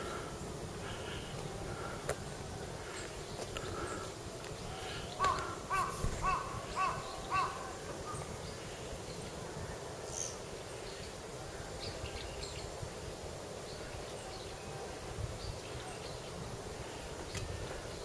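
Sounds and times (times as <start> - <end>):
crow cawing: 5.2 - 7.8.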